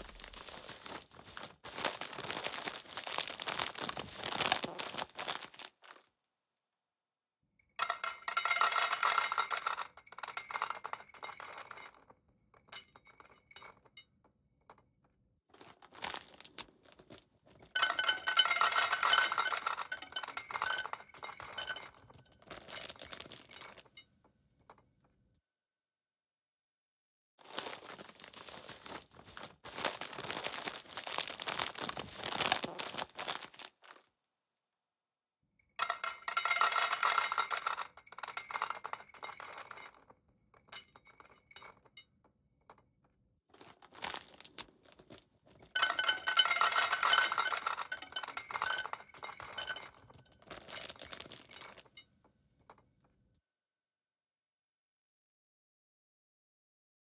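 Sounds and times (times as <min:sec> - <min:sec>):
crackling rustling: 0:00.0 - 0:06.1, 0:27.4 - 0:34.1, 0:43.5 - 0:51.9
dry pet food clattering into bowl: 0:07.8 - 0:12.0, 0:17.8 - 0:24.0, 0:35.8 - 0:40.0, 0:45.8 - 0:52.0.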